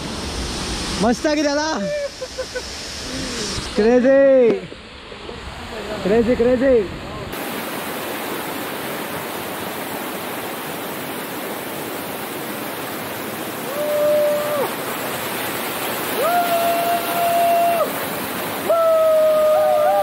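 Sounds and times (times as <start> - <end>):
small waterfall rushing: 0.0 - 20.0
person whooping: 1.6 - 3.5, 13.6 - 14.8, 16.1 - 18.0, 18.6 - 20.0.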